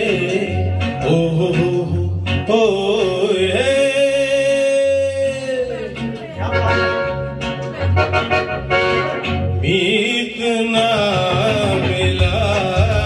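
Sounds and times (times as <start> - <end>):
man singing into microphone: 0.0 - 6.6, 9.5 - 13.0
karaoke backing track: 0.0 - 13.0.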